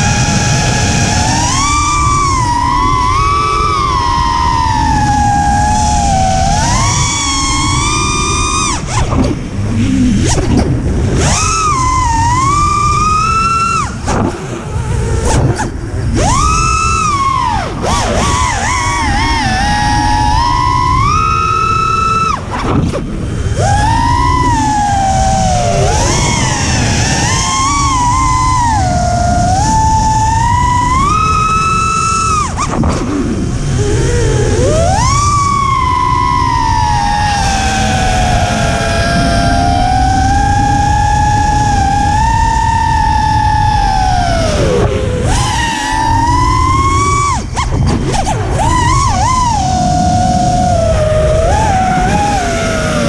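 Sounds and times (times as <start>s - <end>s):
quadcopter motors whining: 0.0s - 53.0s
wind rumble on microphone: 0.0s - 53.0s.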